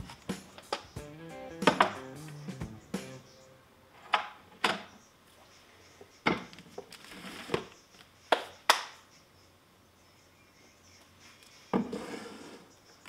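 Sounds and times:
plastic sliding on wooden shelves: 11.7 - 12.7.

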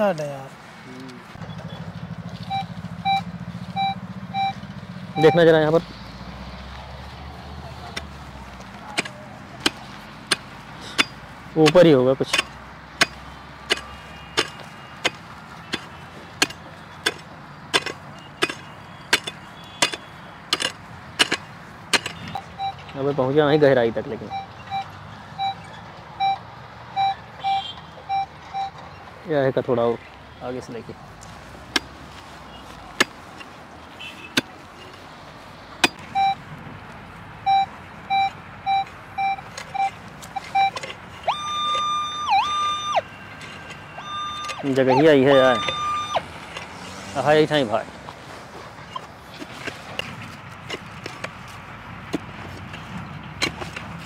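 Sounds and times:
metal detector beeping: 1.4 - 5.8, 9.7 - 17.2, 17.8 - 23.1, 24.2 - 28.8, 35.8 - 36.4, 37.4 - 46.9
pickaxe striking dry ground: 8.9 - 22.3.

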